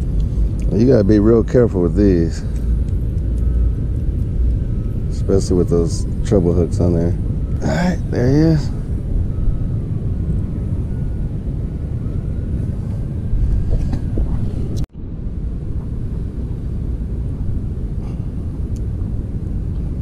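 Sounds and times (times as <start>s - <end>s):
river rumble: 7.2s - 9.4s.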